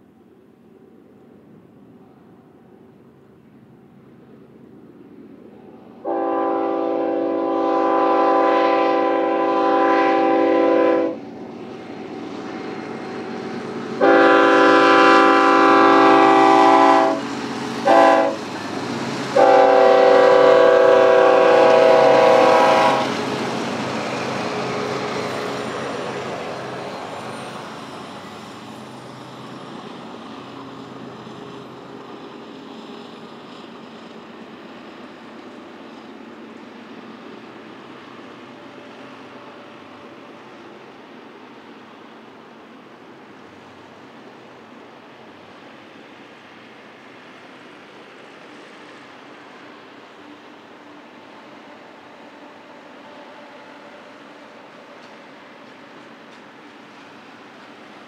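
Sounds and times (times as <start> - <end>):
train rumbling past: 0.0 - 58.0
train air horn blasts: 6.0 - 11.2, 14.0 - 17.2, 17.8 - 18.4, 19.4 - 23.2.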